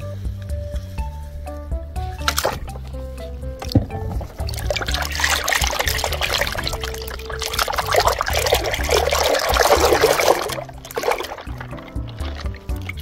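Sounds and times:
low background music: 0.0s - 13.0s
water pouring and splashing: 2.2s - 3.0s, 3.6s - 13.0s.

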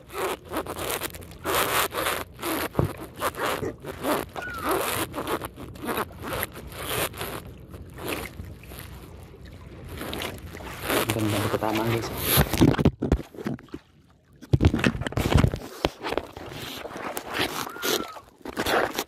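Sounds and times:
short squeak: 0.0s - 7.4s, 17.3s - 18.7s
line scraping against wooden boat: 0.0s - 19.0s.

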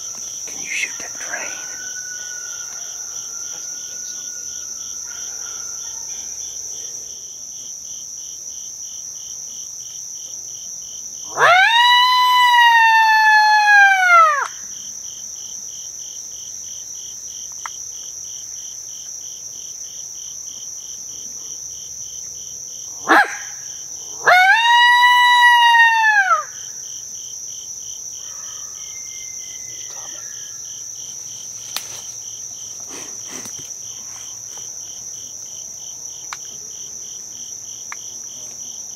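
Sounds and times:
insects trilling: 0.0s - 38.9s
coyote howls on a call: 11.3s - 14.6s, 22.9s - 26.8s.

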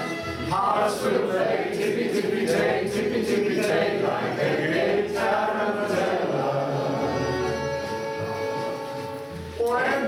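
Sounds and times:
group of people singing: 0.5s - 7.6s.

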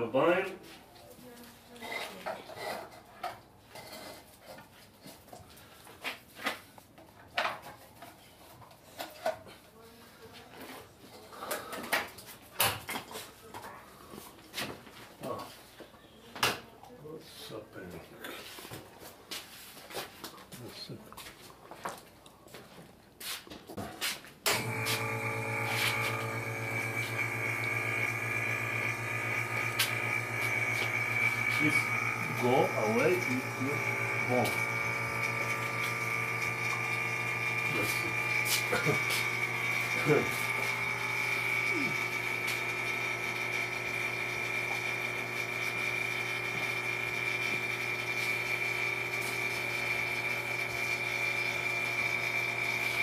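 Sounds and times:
machine electric hum and whine: 24.5s - 53.0s.

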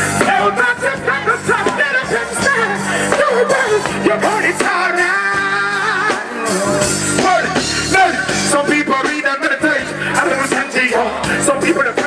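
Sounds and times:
live reggae band: 0.0s - 12.0s
man singing into microphone: 0.1s - 12.0s.

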